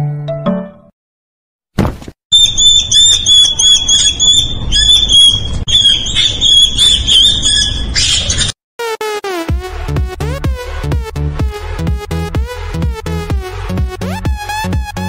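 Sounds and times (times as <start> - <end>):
rodent squealing: 2.3 - 8.5.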